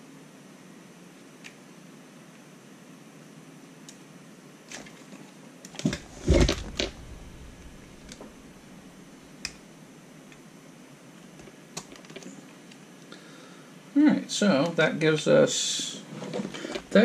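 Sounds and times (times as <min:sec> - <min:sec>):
dull thump of toy set down: 0:05.8 - 0:08.3.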